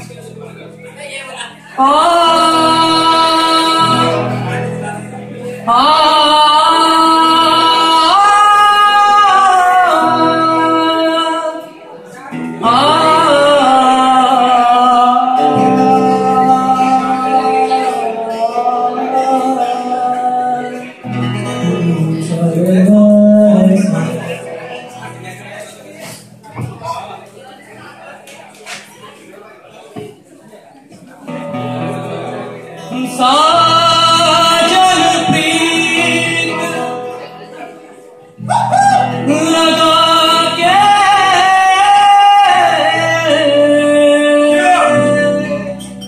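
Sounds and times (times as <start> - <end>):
acoustic guitar: 0.0 - 46.0
man singing long held notes: 1.8 - 4.8, 5.4 - 11.9, 12.6 - 24.6, 32.8 - 37.3, 38.4 - 45.9.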